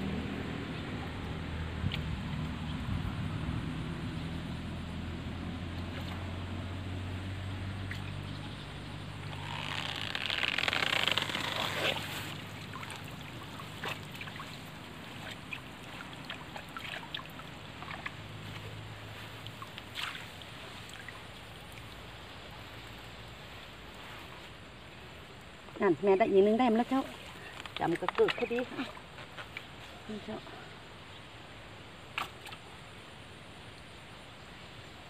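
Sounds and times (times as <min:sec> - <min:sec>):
drips and small splashes: 0:07.6 - 0:30.6, 0:32.0 - 0:33.1
water pouring off net: 0:09.3 - 0:23.0.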